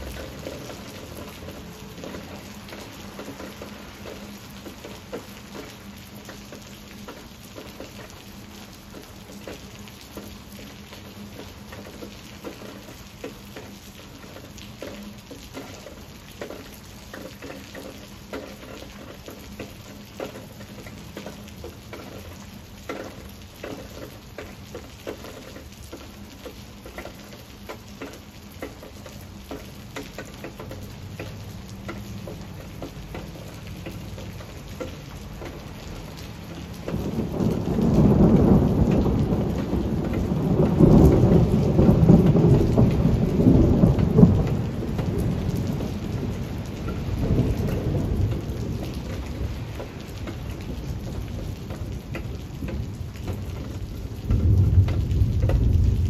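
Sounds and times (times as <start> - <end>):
rain on leaves: 0.0 - 56.0
low thunder rumble: 36.8 - 56.0.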